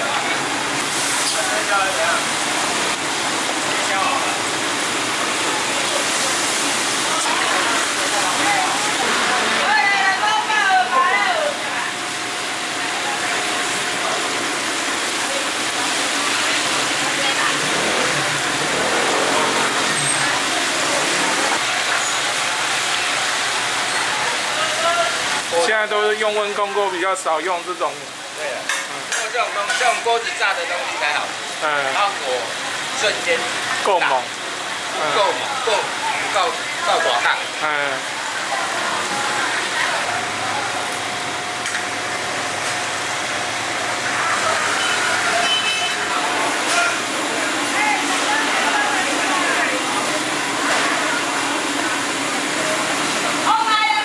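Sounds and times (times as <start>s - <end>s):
food sizzling in hot oil: 0.1s - 54.0s
faint voices: 5.4s - 22.5s.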